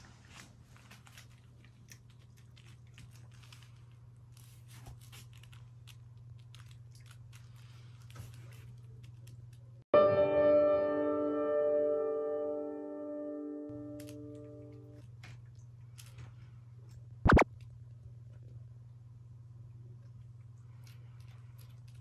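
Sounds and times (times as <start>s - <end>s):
cat crunching food: 0.8s - 9.8s, 14.0s - 17.0s, 19.8s - 22.0s.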